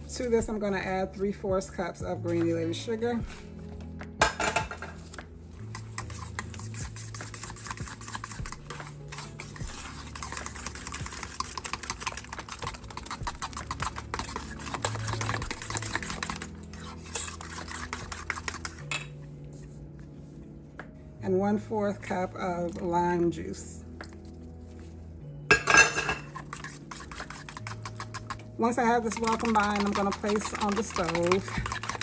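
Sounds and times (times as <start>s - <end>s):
wire whisk beating in a bowl: 5.7s - 19.1s, 25.5s - 32.0s.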